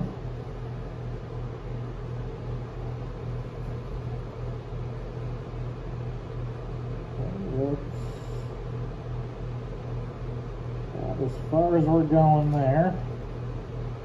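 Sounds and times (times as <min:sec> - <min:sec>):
faint regular throb: 0:00.0 - 0:14.0
low electrical hum: 0:00.0 - 0:14.0.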